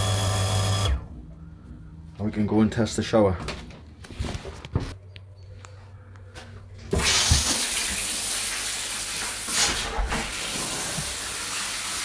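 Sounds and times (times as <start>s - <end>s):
shower water spraying: 6.9s - 12.0s.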